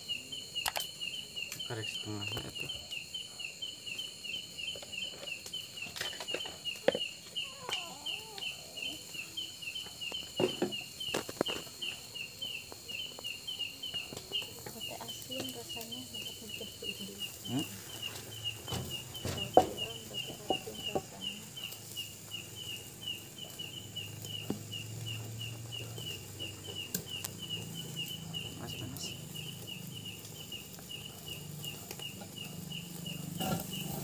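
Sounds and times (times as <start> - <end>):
insect chirping: 0.0 - 34.0
grill and skewers clicking: 0.6 - 1.7, 13.9 - 34.0.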